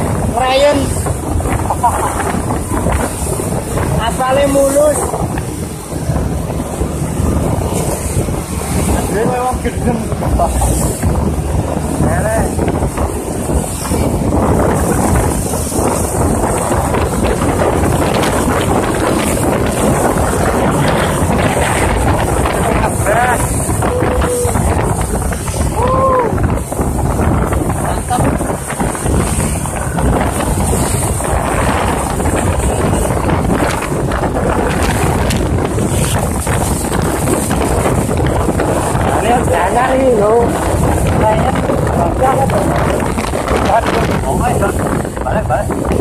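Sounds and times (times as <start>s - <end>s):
road and traffic noise: 0.0s - 46.0s
wind buffeting microphone: 0.0s - 46.0s.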